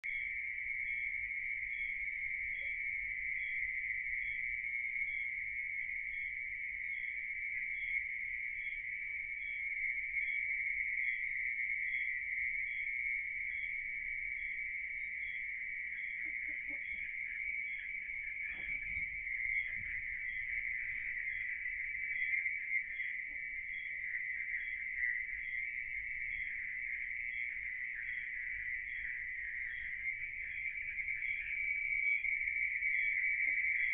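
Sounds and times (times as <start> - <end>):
crickets trilling: 0.0 - 33.9
faint high insect chirp: 0.0 - 33.9.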